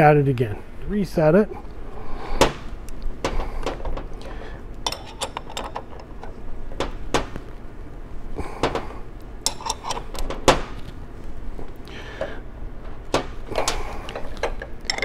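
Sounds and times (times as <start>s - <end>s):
metal clicks and clinks of wrench: 4.8s - 6.4s, 13.6s - 15.0s.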